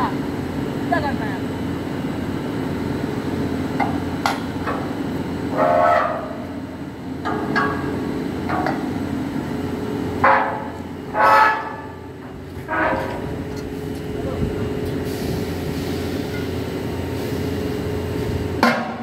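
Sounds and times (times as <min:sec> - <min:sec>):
steady low hum: 0:00.0 - 0:19.0
sharp metal knocks: 0:18.6 - 0:19.0.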